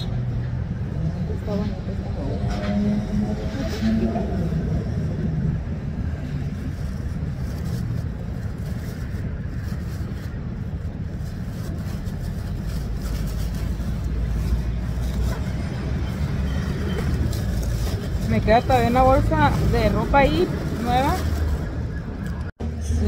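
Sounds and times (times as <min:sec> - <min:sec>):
road traffic rumble: 0:00.0 - 0:23.0
heavy trucks: 0:12.1 - 0:23.0.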